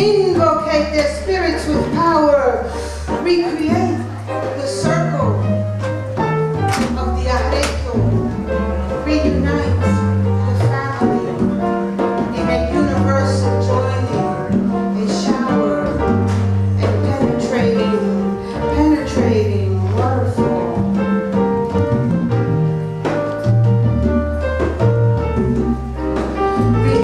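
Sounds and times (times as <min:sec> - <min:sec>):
percussion strikes: 0:00.0 - 0:27.0
piano notes: 0:00.0 - 0:27.0
bass long low notes: 0:18.6 - 0:27.0.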